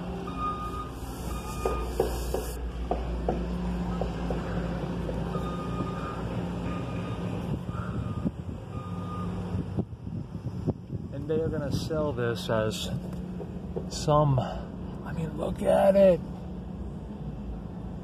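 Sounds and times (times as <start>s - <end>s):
vehicle backup alarm beeping: 0.0s - 2.6s, 5.3s - 9.7s
low engine hum: 0.0s - 18.0s.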